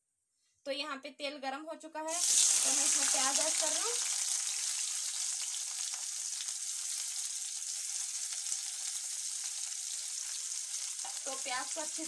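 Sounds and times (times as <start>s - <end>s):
onions sizzling in hot oil: 2.1s - 12.0s.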